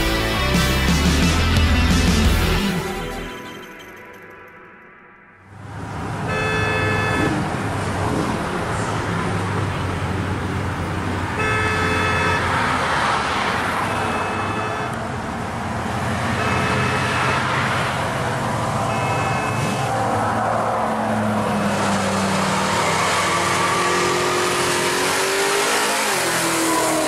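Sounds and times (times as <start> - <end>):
car horn toots: 6.2 - 7.5, 11.3 - 12.6, 13.8 - 15.0, 16.3 - 17.6, 18.8 - 19.9.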